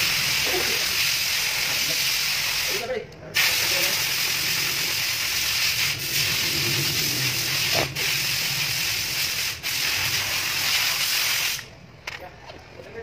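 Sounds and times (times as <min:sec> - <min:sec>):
loud steady hiss: 0:00.0 - 0:11.7.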